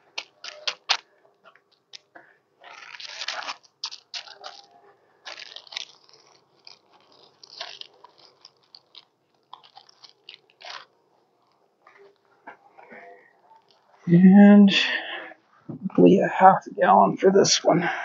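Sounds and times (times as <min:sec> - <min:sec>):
hands crunching beehive frames: 0:00.0 - 0:12.2.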